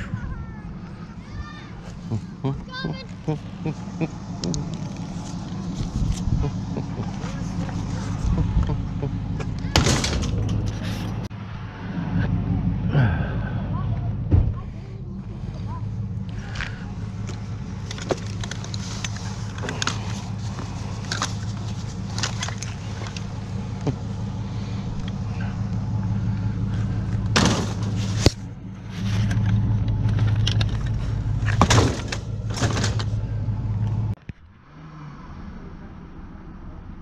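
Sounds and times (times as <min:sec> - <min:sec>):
truck engine idling: 0:00.0 - 0:34.2
metal clanks and rattles: 0:09.4 - 0:11.3, 0:17.2 - 0:24.0, 0:26.6 - 0:33.9.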